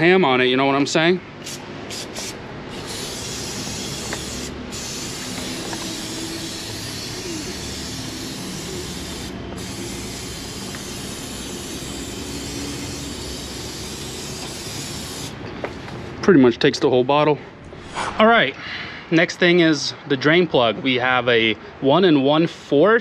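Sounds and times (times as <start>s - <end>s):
aerosol can spraying: 1.4s - 15.4s.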